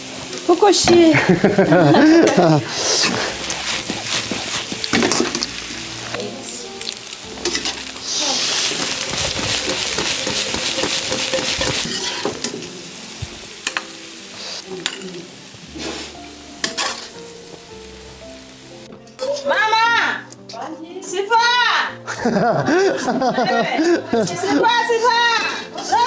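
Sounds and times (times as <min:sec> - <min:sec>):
food sizzling in wok: 0:00.0 - 0:20.4, 0:21.0 - 0:26.0
ladle scraping wok: 0:01.2 - 0:06.2, 0:06.9 - 0:12.7, 0:15.7 - 0:17.2.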